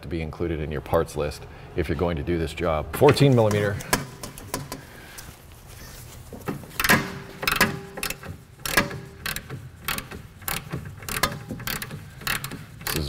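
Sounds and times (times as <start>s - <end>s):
hand ratchet clicking: 6.7s - 13.0s.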